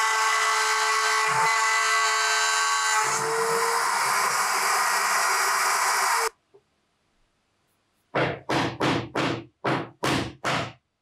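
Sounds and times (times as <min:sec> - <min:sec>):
wood router whining: 0:00.0 - 0:06.3.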